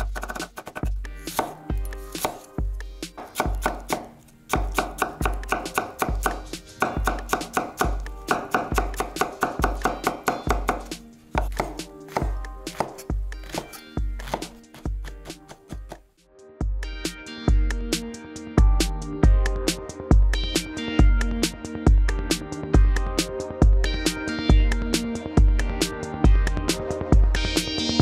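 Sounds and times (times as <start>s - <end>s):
knife chopping on wooden board: 0.0s - 2.5s, 3.2s - 16.0s
background music with steady beat: 0.0s - 28.0s.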